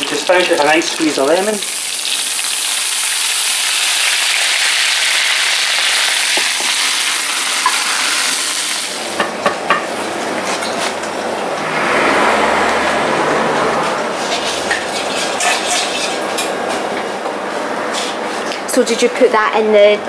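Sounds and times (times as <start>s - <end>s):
fish sizzling in butter: 0.0s - 9.1s.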